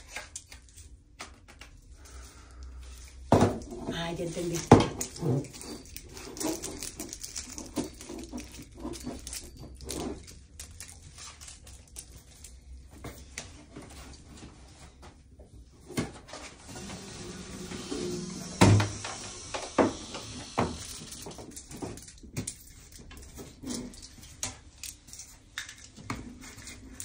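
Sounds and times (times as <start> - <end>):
chair being moved: 16.2 - 21.0.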